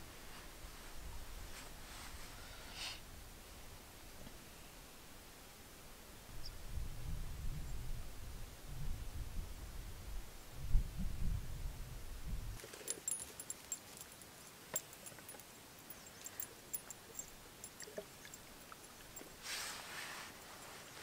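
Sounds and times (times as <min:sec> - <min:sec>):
wind rumbling on microphone: 0:06.2 - 0:12.6.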